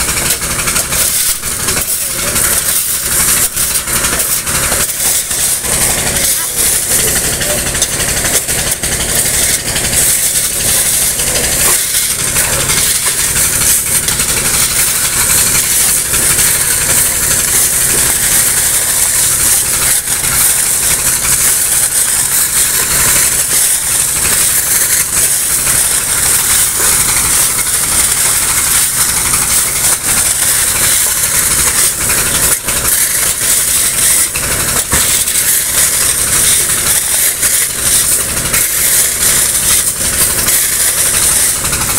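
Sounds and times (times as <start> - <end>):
engine running: 0.0 - 41.9
loud hiss: 0.0 - 41.9
shovels digging into wet gravel: 0.0 - 41.9.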